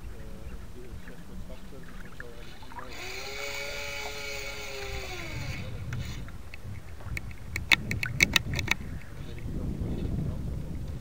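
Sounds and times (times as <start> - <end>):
water and wind rumble: 0.0 - 11.0
electric servo whining: 2.4 - 6.4
sharp clicks: 2.8 - 9.1.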